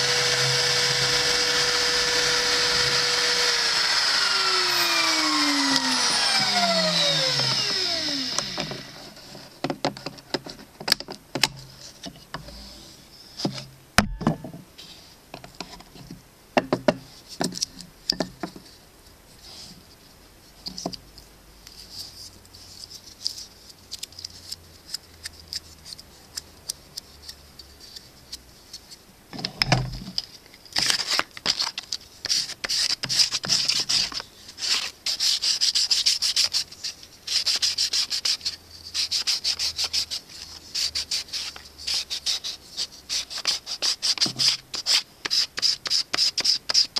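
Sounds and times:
sandpaper rubbing wood: 0:00.0 - 0:08.3, 0:32.2 - 0:46.9
router spindle winding down: 0:00.0 - 0:09.0.

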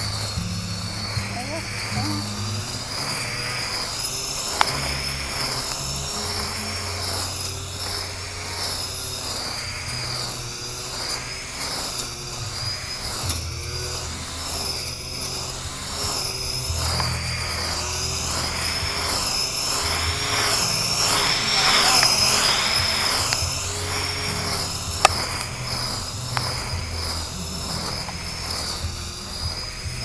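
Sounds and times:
grass trimmer motor whine: 0:00.0 - 0:30.0
sharp tick: 0:03.7 - 0:08.0, 0:13.1 - 0:29.7.

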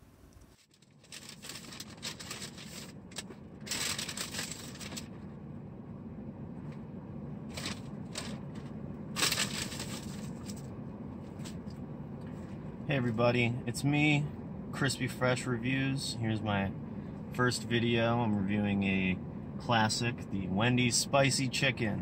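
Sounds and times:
car cabin low hum: 0:00.0 - 0:22.0
paper packaging crinkling: 0:00.5 - 0:05.2, 0:07.5 - 0:08.4, 0:09.2 - 0:10.6.

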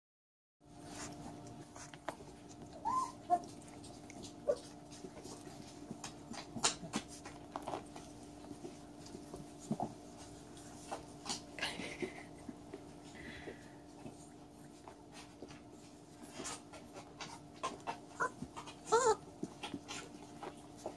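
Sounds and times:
snuffling and scuffling: 0:00.7 - 0:20.9
steady low hum: 0:00.7 - 0:20.9
puppy whine: 0:01.8 - 0:05.1, 0:16.9 - 0:20.9.

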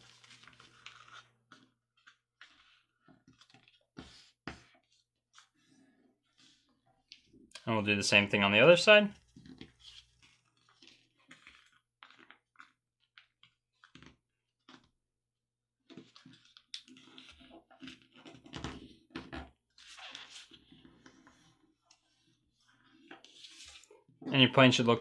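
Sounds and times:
paper rustling and creasing: 0:00.0 - 0:07.3, 0:09.2 - 0:14.9.

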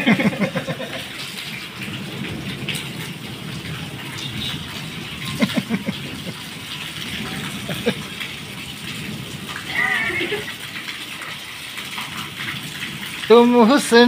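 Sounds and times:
heavy rain on concrete: 0:00.0 - 0:14.0.

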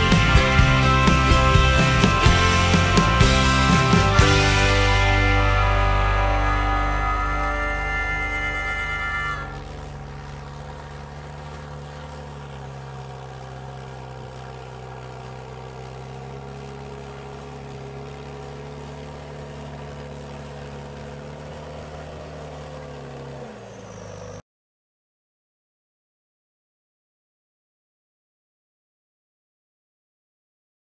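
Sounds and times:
tractor diesel engine under load: 0:00.0 - 0:24.4.

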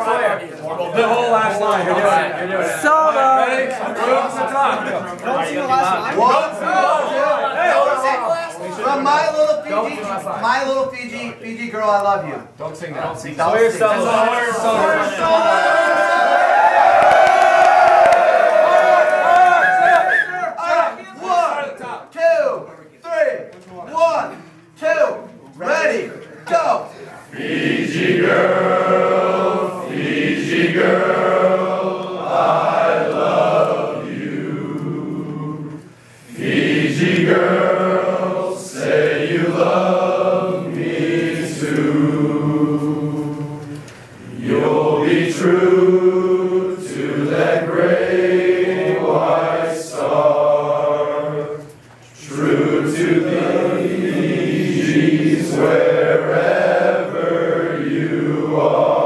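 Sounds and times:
male choir singing: 0:13.7 - 0:16.5, 0:27.3 - 0:59.0.

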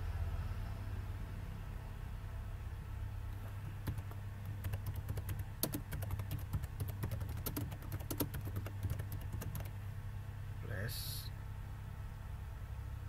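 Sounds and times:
steady low hum: 0:00.0 - 0:13.0
typing on a keyboard: 0:03.8 - 0:09.7.

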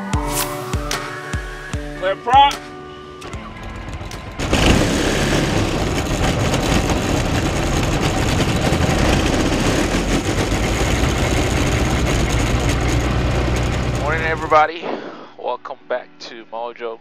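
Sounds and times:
aircraft engine and propeller running: 0:03.1 - 0:14.6.

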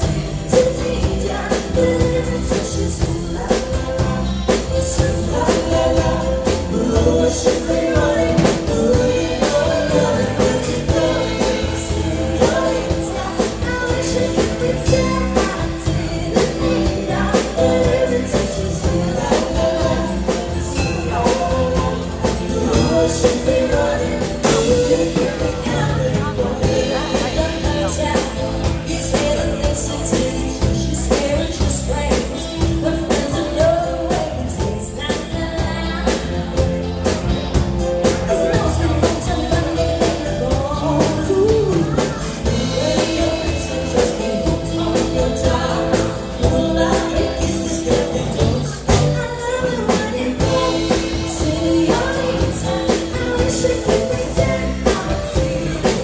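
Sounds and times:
drum kit beat: 0:00.0 - 0:56.0
electric bass: 0:00.0 - 0:56.0
woman singing: 0:00.0 - 0:56.0.

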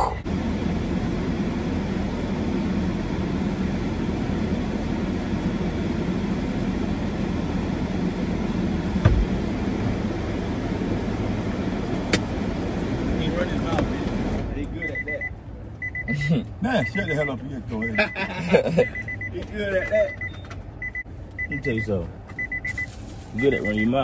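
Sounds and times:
car road and engine noise: 0:00.0 - 0:24.0
thump: 0:09.0 - 0:09.4.

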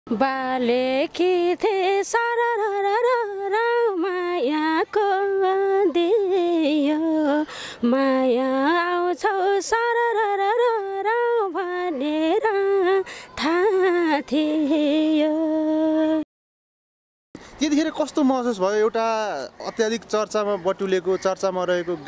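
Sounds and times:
woman singing unaccompanied: 0:00.1 - 0:16.3.

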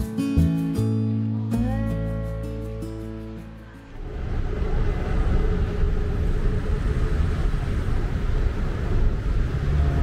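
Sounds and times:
traffic rumble of passing cars: 0:02.6 - 0:10.0.

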